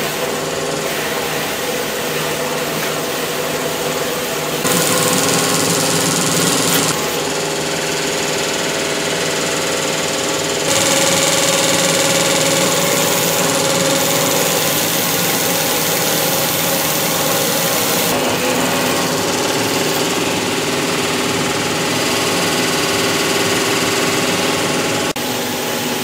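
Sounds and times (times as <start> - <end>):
electric roller machine droning: 4.7 - 25.2.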